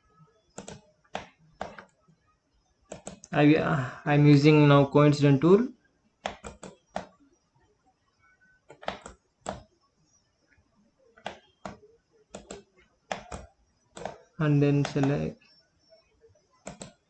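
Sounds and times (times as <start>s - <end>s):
computer mouse clicking: 0.4s - 2.1s, 2.9s - 3.3s, 6.2s - 7.3s, 8.7s - 9.8s, 11.2s - 15.2s, 15.8s - 17.0s.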